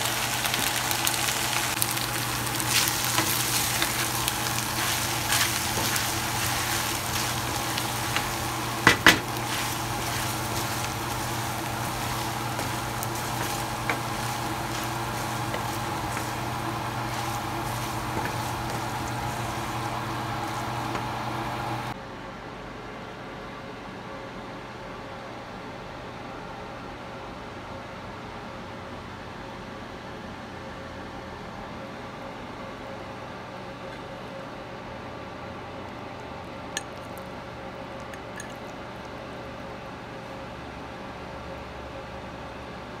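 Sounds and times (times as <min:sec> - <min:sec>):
food sizzling in a metal pan: 0:00.0 - 0:21.9
spoon knocking against pan: 0:08.8 - 0:09.3.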